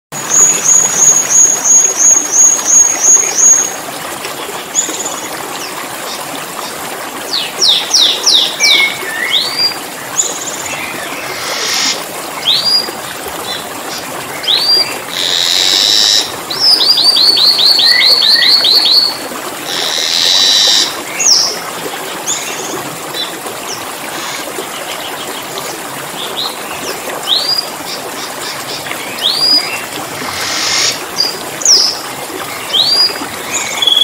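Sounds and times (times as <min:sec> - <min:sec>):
water trickling: 0:00.1 - 0:34.0
starling calling: 0:11.2 - 0:12.0, 0:30.2 - 0:31.0.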